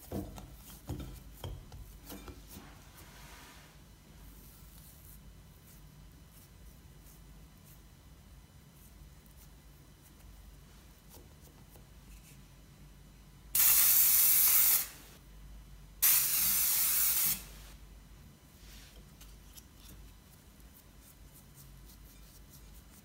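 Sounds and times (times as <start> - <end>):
cooking spray hissing: 13.6 - 15.2, 16.0 - 17.8.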